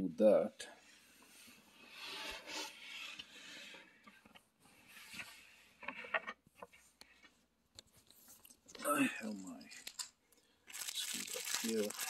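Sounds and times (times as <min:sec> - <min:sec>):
handling rustle: 0:10.7 - 0:12.0.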